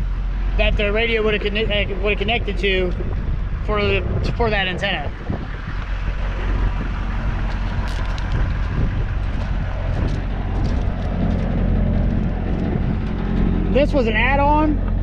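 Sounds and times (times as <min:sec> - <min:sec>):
diesel engine idling: 0:00.0 - 0:15.0
footsteps on gravel: 0:05.8 - 0:13.4.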